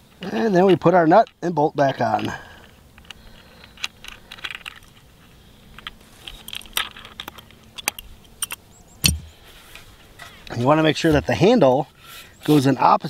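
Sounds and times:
metal hardware clinking: 5.8 - 9.3
dull thump: 9.0 - 9.4.

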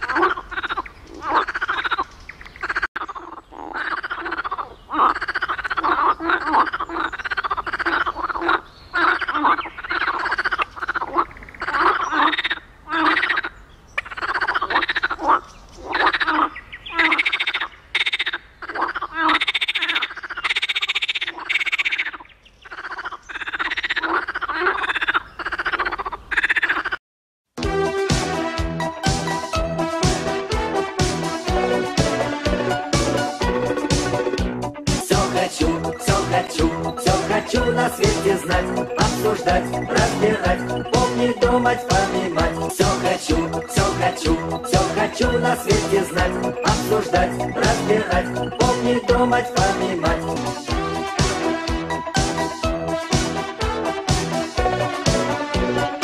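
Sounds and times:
frogs croaking: 0.0 - 27.0.

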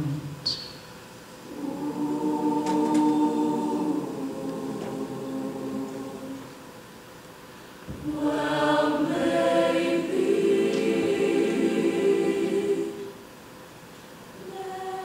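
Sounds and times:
choir singing sustained chord: 1.4 - 7.0, 8.0 - 13.4, 14.4 - 15.0.

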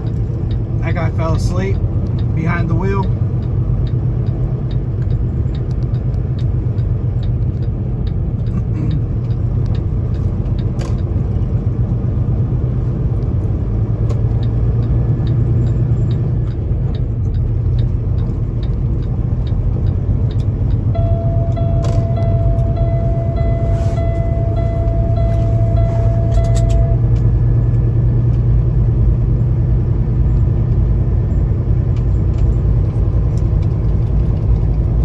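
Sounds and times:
light ticks: 0.0 - 1.0, 2.0 - 11.1, 14.1 - 20.9
diesel truck engine droning: 0.0 - 35.0.

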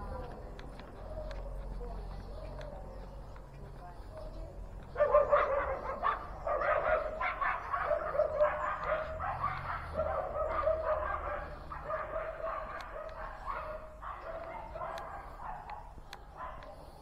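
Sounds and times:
dog barking and yipping: 4.9 - 17.0.

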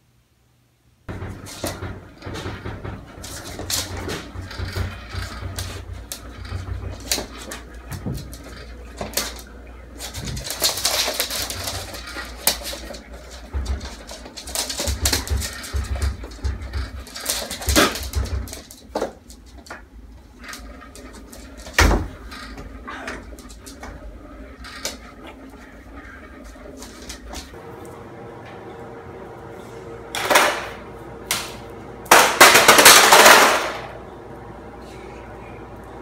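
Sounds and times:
claws clicking on wooden floor: 3.2 - 22.7.

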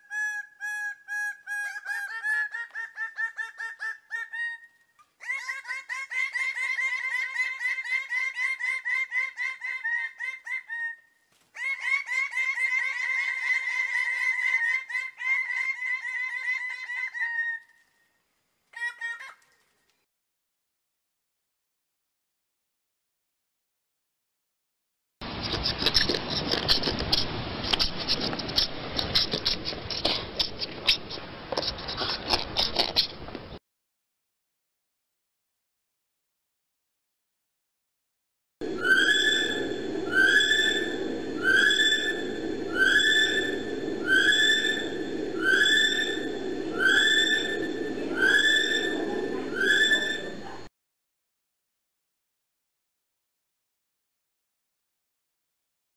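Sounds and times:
wombat scratching and rustling: 25.4 - 33.2
bird calling repeated notes: 38.6 - 50.7.

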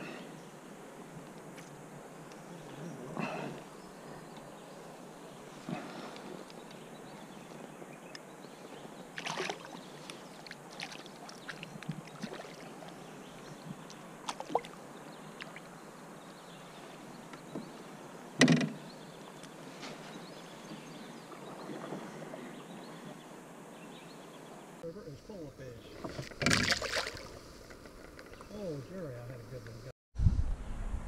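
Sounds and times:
fish splashing: 9.2 - 12.9, 14.2 - 14.8, 26.3 - 27.4
clatter in a canoe: 25.9 - 28.6.

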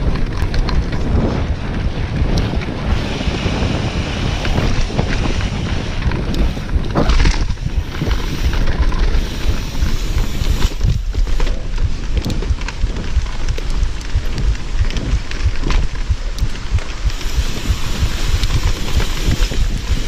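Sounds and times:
wind over microphone: 0.0 - 20.0
bike knocking over bumps: 4.3 - 20.0.

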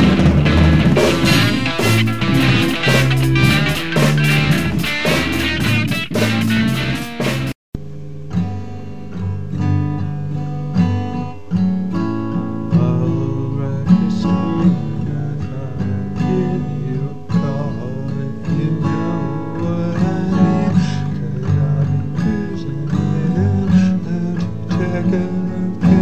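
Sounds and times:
blues guitar playing: 0.0 - 7.6.

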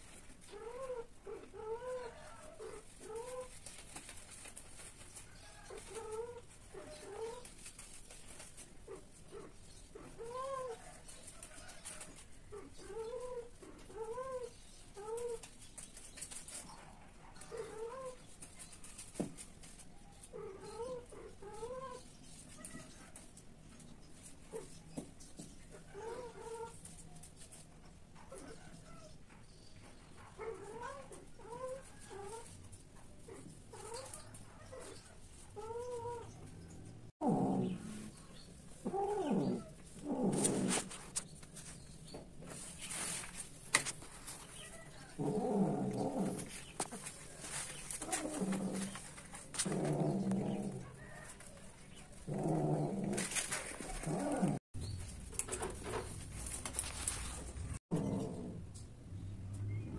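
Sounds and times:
cats yowling and growling: 0.4 - 3.6, 5.4 - 7.6, 8.9 - 15.5, 17.3 - 18.2, 20.2 - 23.0, 25.8 - 26.8, 30.2 - 32.6, 33.2 - 36.6, 37.2 - 41.1, 44.6 - 47.3, 47.9 - 51.4, 52.1 - 54.6.

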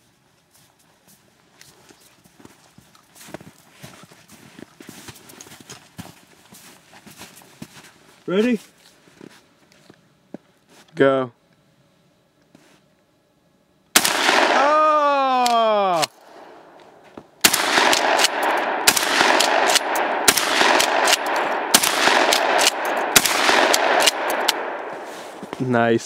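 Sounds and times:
rapid gunfire: 14.0 - 14.8, 17.4 - 24.8.

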